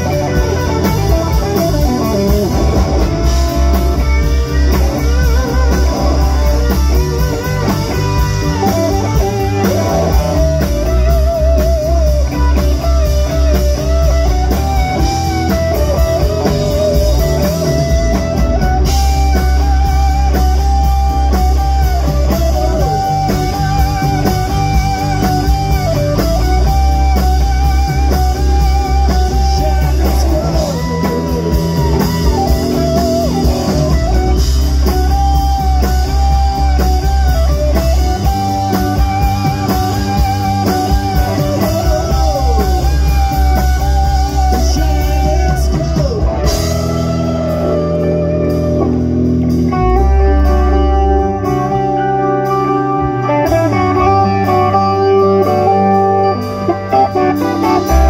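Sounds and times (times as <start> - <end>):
blues-rock band playing: 0.0 - 58.0
electric guitar lead bending notes: 0.0 - 58.0.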